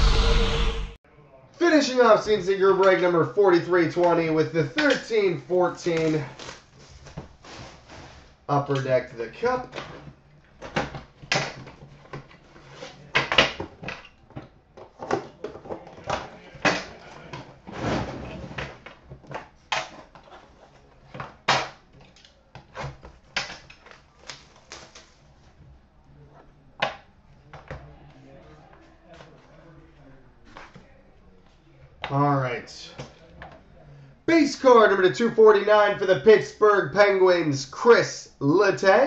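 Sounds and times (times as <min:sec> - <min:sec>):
rustling scrape of cardboard: 0:06.2 - 0:08.4, 0:17.6 - 0:18.8.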